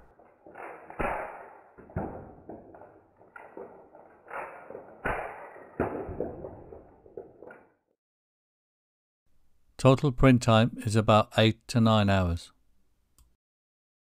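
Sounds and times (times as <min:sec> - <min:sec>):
discs dropping on wooden table: 0:01.8 - 0:07.7.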